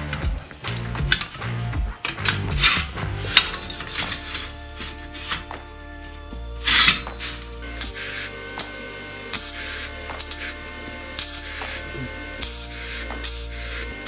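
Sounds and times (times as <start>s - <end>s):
steel pieces clinking and scraping: 0.0s - 8.7s.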